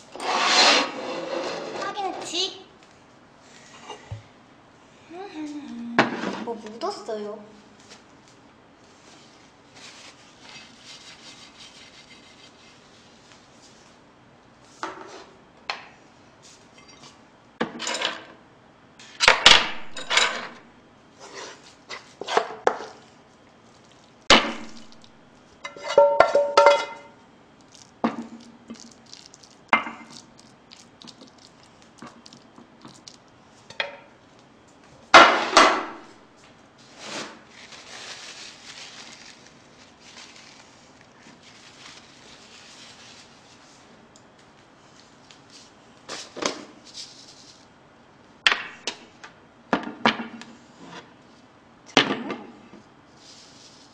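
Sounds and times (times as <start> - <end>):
utensil scraping frying pan: 0.0 - 2.0.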